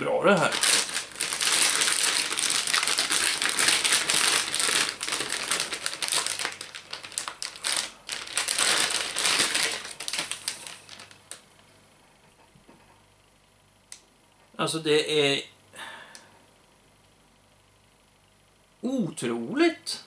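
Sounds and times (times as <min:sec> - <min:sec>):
plastic bag crinkling: 0:00.2 - 0:11.4.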